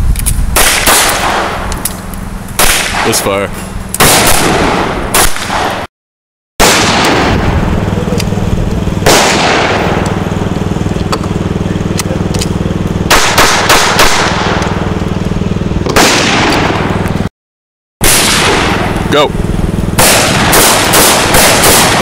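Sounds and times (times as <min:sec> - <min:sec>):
steady low hum: 0:00.0 - 0:05.9, 0:06.6 - 0:17.3, 0:18.0 - 0:22.0
pistol shots: 0:00.6 - 0:01.8, 0:02.6 - 0:03.4, 0:04.0 - 0:05.9, 0:06.6 - 0:07.5, 0:09.0 - 0:10.0, 0:13.1 - 0:14.6, 0:15.9 - 0:16.9, 0:18.0 - 0:19.0, 0:20.0 - 0:22.0.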